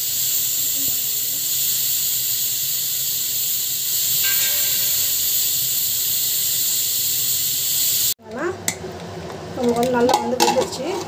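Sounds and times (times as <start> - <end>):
pressure cooker steam hissing: 0.0 - 8.2.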